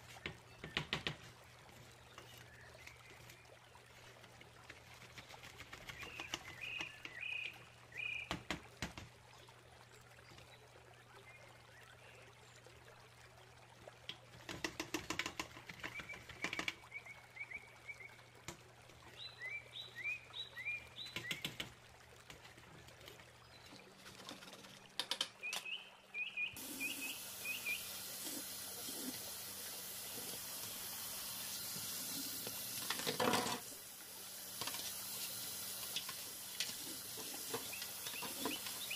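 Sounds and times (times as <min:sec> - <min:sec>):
tap water running: 0:00.0 - 0:09.3, 0:13.9 - 0:17.0, 0:18.2 - 0:25.5, 0:26.5 - 0:38.9
bird chirping: 0:25.4 - 0:27.9
brush scrubbing metal filter: 0:26.6 - 0:33.9, 0:34.5 - 0:38.9.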